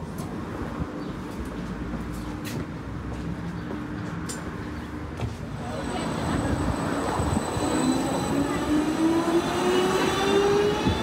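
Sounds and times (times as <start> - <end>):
tram running on rails: 0.0 - 11.0
tram motor whine: 5.5 - 11.0.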